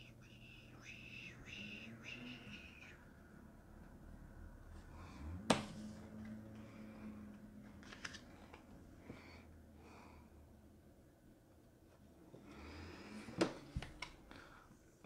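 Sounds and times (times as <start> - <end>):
light rustling of cards: 7.3 - 8.8
playing cards handled: 7.7 - 8.7.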